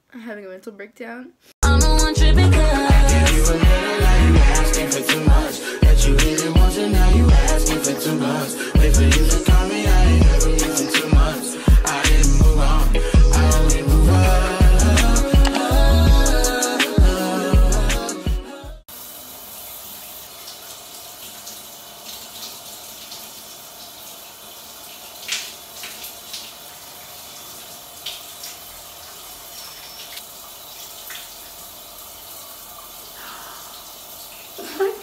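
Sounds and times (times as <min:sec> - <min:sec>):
music: 0:01.6 - 0:18.8
shower running: 0:02.6 - 0:18.1, 0:18.8 - 0:35.0.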